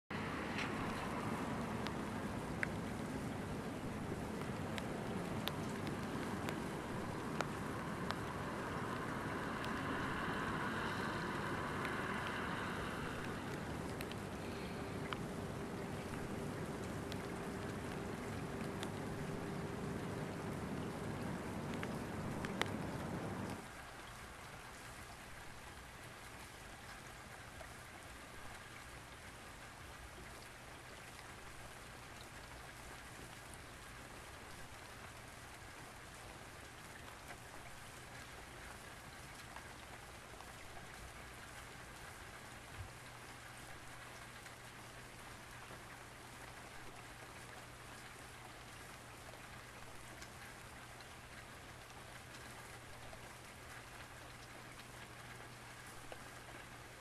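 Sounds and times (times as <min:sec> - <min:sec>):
faint low hum: 0:00.1 - 0:23.7
light rain pattering: 0:00.1 - 0:57.0.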